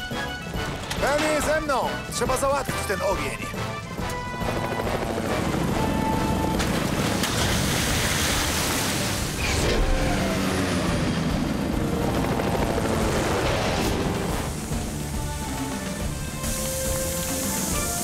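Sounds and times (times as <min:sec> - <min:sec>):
helicopter rotor and engine: 0:00.0 - 0:18.0.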